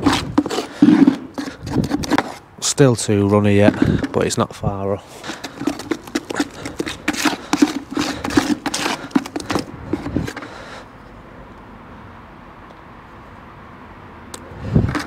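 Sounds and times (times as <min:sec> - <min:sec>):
trowel scraping plastic bucket: 0:00.0 - 0:02.5, 0:03.1 - 0:04.4, 0:05.1 - 0:10.8.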